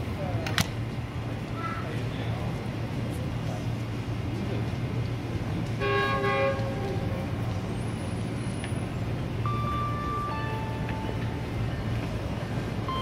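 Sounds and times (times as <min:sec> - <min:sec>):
steady low rumble: 0:00.0 - 0:13.0
distant train horn chord: 0:05.8 - 0:07.0.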